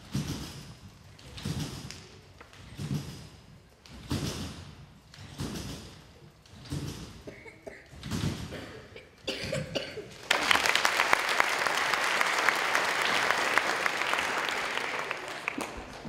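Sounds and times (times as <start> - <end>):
audience applause: 10.2 - 16.0.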